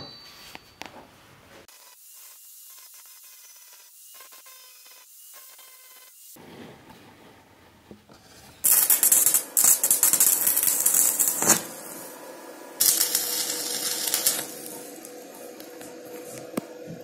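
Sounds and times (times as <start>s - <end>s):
welding arc crackling: 8.6s - 17.0s.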